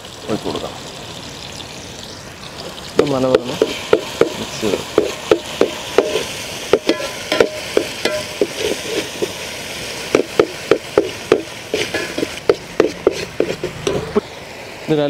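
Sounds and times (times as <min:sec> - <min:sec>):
sauce sizzling in oil: 0:00.0 - 0:15.0
spoon stirring and scraping pot: 0:03.5 - 0:09.4, 0:10.1 - 0:14.1.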